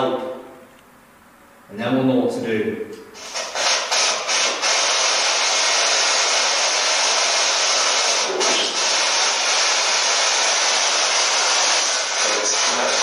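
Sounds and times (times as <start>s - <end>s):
radio static hiss: 3.2s - 13.0s.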